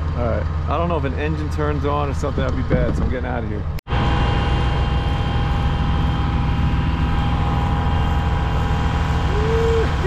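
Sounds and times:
diesel machinery drone: 0.0s - 10.0s
steady humming tones: 0.2s - 10.0s.

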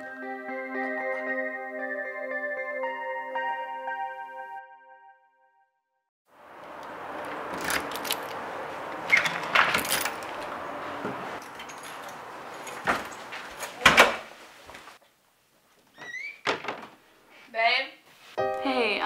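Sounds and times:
keys jangling: 7.5s - 8.4s, 9.1s - 10.5s, 11.4s - 13.8s.

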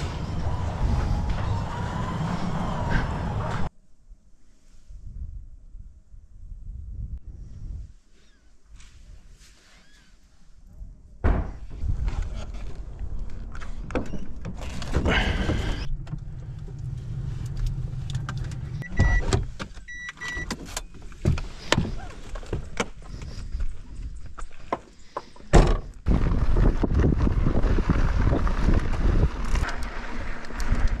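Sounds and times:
car engine hum: 0.0s - 3.7s, 14.6s - 19.8s
wind rush: 0.0s - 3.7s, 26.0s - 31.0s
bike tyres on gravel: 26.0s - 31.0s.

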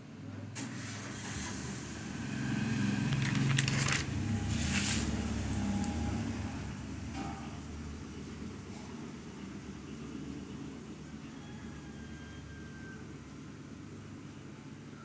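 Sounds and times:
paper page turning: 3.0s - 5.7s.

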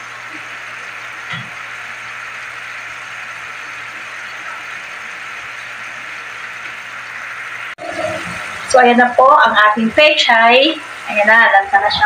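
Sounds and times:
food sizzling in a frying pan: 0.0s - 12.0s
low steady hum: 0.0s - 12.0s.

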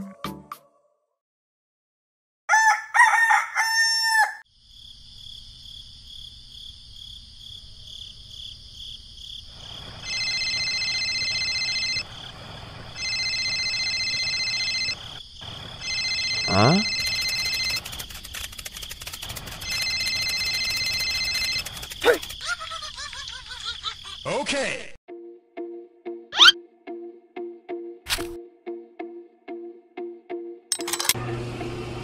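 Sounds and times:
rooster crowing: 2.5s - 4.5s
mobile phone ringtone: 10.0s - 12.1s, 12.9s - 15.2s, 15.8s - 18.0s, 19.6s - 21.9s.

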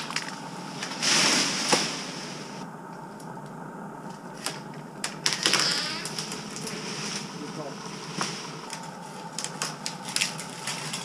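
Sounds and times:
branch rustling: 6.0s - 11.0s.

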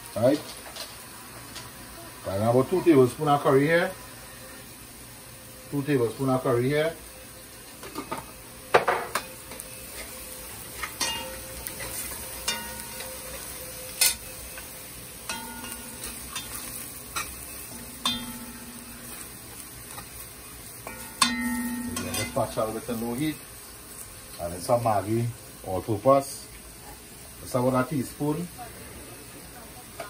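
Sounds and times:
food sizzling in hot oil: 0.0s - 30.0s.

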